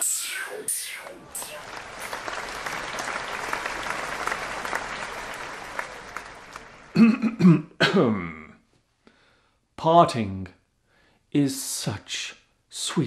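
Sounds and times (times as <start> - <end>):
applause: 1.0 - 7.0
man clearing his throat: 6.9 - 8.6.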